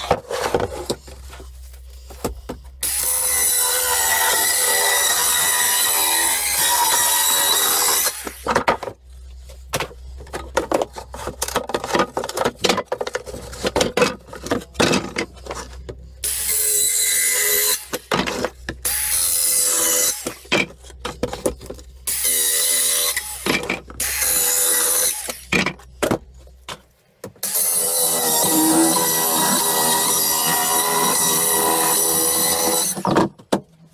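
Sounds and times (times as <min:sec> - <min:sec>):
circular saw cutting wood: 0:02.8 - 0:08.6, 0:13.3 - 0:21.4, 0:22.0 - 0:25.6, 0:27.4 - 0:33.2
wooden boards clattering: 0:08.4 - 0:09.0, 0:09.7 - 0:16.0, 0:32.8 - 0:33.9.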